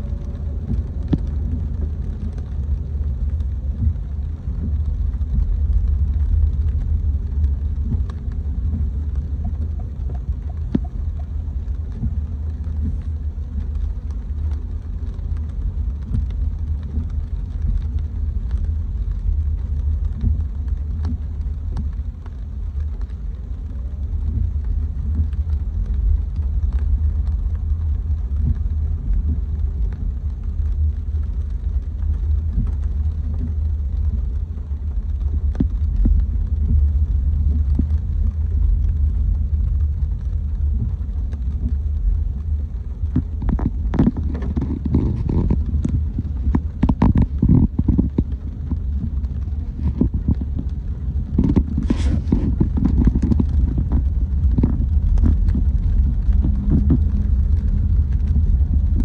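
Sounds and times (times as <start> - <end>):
car driving rumble: 0.0 - 59.0
irregular knocks and thuds: 7.8 - 13.0.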